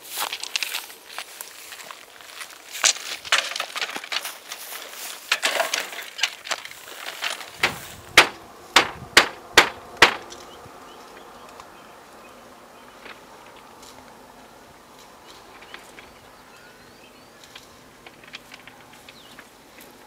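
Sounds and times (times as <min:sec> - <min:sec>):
scuffing and handling noises: 0:00.0 - 0:08.4.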